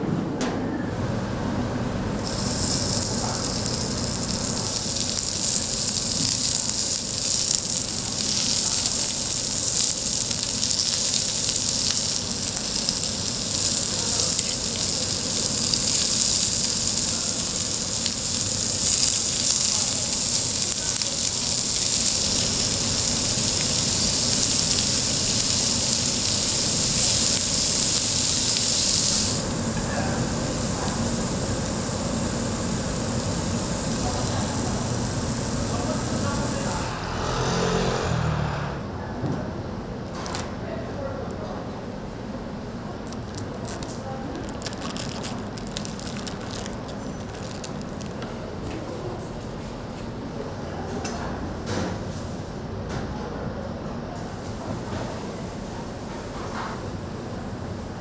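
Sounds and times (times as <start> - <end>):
food sizzling on griddle: 2.1 - 36.9, 43.2 - 48.2.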